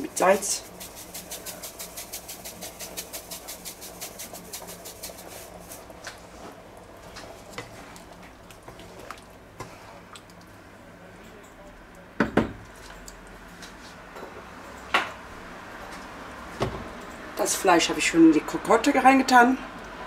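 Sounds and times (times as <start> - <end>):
salt shaker rattling: 0.2 - 5.9.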